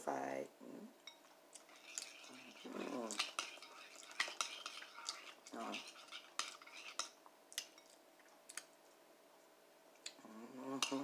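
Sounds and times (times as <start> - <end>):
metal spoon clinking against bowl: 1.0 - 7.2.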